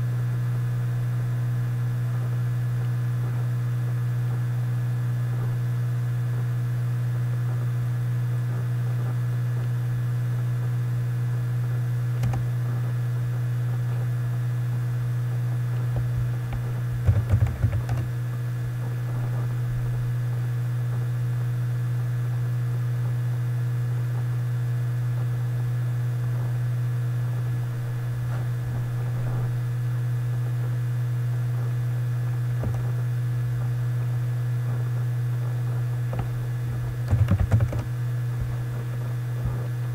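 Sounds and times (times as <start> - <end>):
low electrical hum: 0.0 - 39.9
computer keyboard typing: 12.2 - 12.4, 16.5 - 18.1, 37.0 - 37.9.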